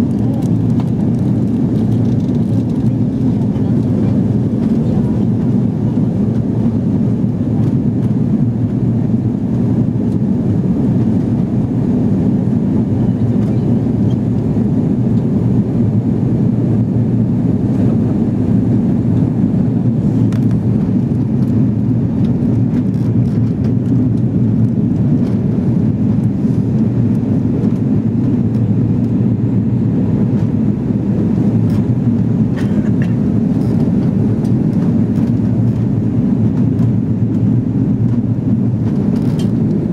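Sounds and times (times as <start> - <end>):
jet airliner cabin noise: 0.0 - 39.9.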